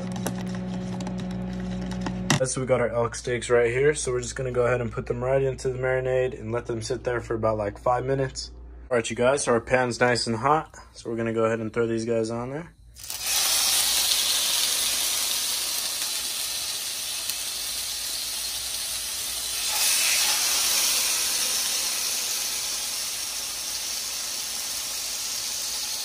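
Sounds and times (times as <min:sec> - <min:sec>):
steaks sizzling in a frying pan: 0:13.0 - 0:26.0.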